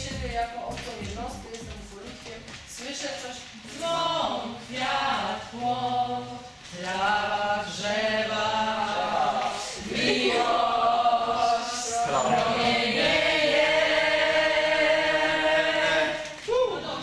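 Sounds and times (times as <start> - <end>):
group of voices chanting: 4.8 - 17.0.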